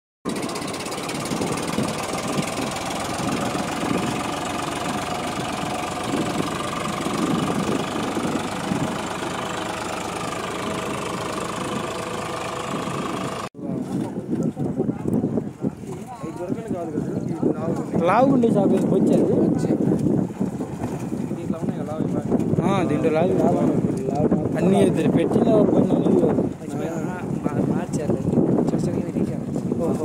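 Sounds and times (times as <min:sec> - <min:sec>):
tractor diesel engine running: 0:00.3 - 0:13.5.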